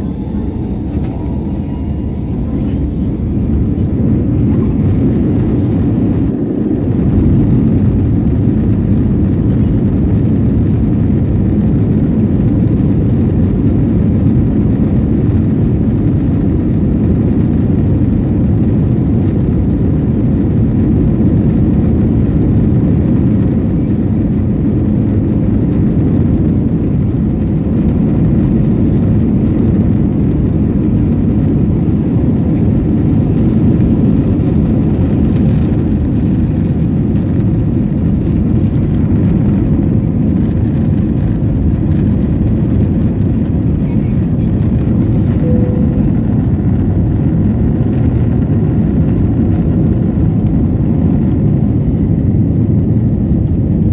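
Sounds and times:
airplane cabin low rumble: 0:00.0 - 0:53.9.

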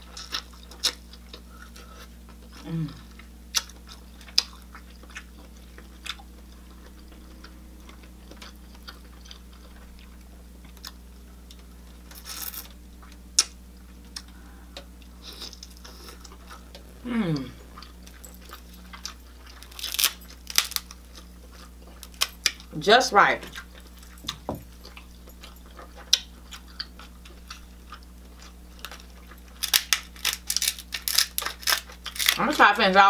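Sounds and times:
wet chewing: 0:00.0 - 0:22.7, 0:23.4 - 0:32.4
person humming mm: 0:02.6 - 0:03.2, 0:16.2 - 0:17.8
crab shell cracking: 0:18.9 - 0:21.2, 0:28.8 - 0:32.4.

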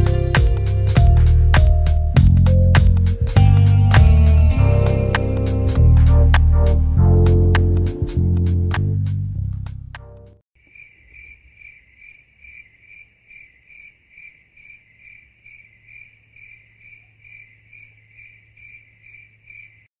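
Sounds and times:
cricket chirping: 0:10.6 - 0:19.9.

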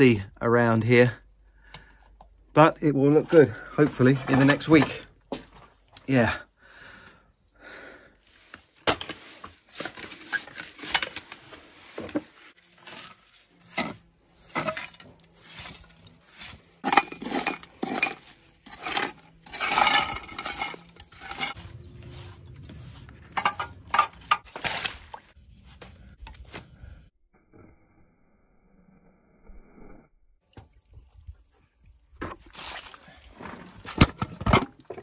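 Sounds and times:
hand tool scraping cement: 0:09.0 - 0:24.9
tile and stone bits clinking: 0:16.8 - 0:21.6.

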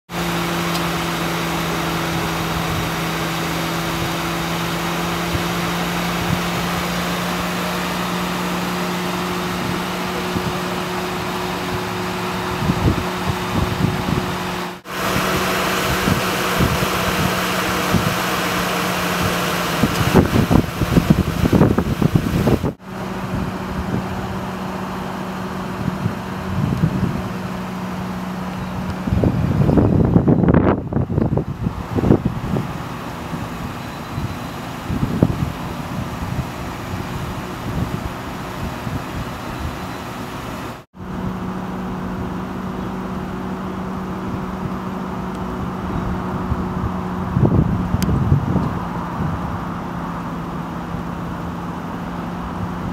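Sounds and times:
car engine idling: 0:00.1 - 0:52.9
low rumbling bumps: 0:07.7 - 0:25.0.

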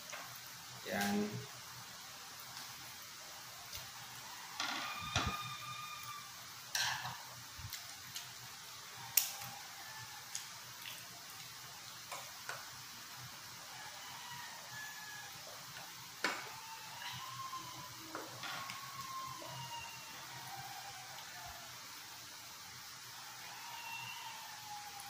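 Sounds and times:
tableware clinking on dishes: 0:06.8 - 0:07.2.

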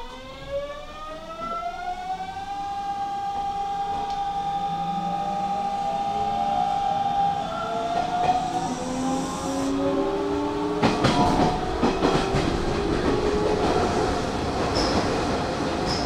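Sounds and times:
electric train motors whining: 0:00.4 - 0:14.8
wheels clacking over rail joints: 0:10.8 - 0:16.0.

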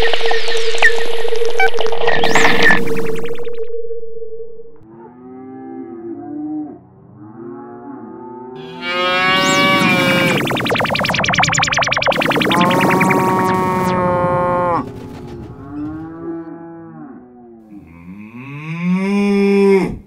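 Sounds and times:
electronic sci-fi beaming effect: 0:00.0 - 0:04.8, 0:08.6 - 0:16.5
cow mooing: 0:04.9 - 0:09.4, 0:15.8 - 0:20.0.

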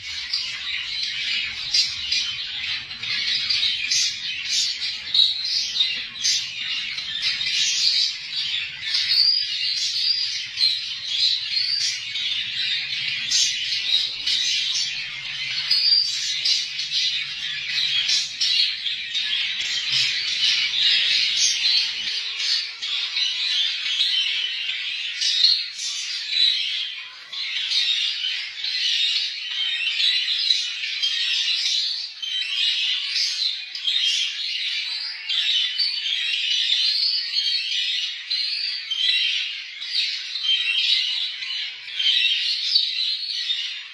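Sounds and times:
cage birds chirping: 0:00.0 - 0:43.9.

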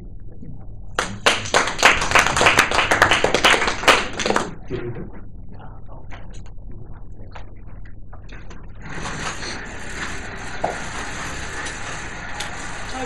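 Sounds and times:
audience applauding: 0:01.0 - 0:04.6.

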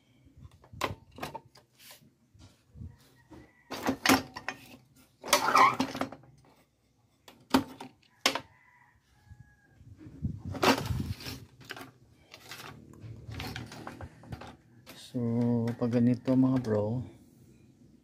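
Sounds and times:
circuit board chassis sliding and scraping: 0:10.7 - 0:14.6.

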